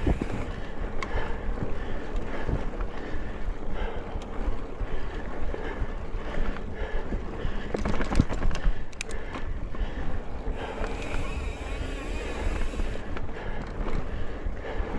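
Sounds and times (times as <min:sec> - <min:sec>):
bike rattles and knocks: 0:00.0 - 0:03.0, 0:07.3 - 0:09.8, 0:10.5 - 0:14.9
tyres rumbling on dirt trail: 0:00.0 - 0:14.9
wind buffeting microphone: 0:00.0 - 0:14.9.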